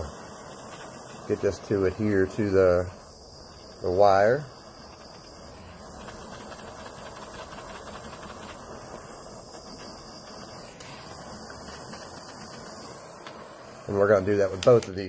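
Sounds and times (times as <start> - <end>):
jet torch hissing: 0.0 - 15.0.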